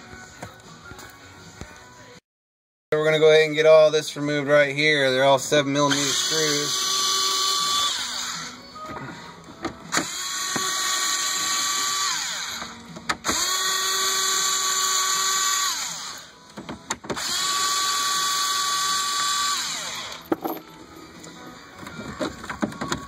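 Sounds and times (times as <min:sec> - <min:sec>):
electric screwdriver whine: 0:05.9 - 0:08.7, 0:09.9 - 0:16.4, 0:17.2 - 0:20.2.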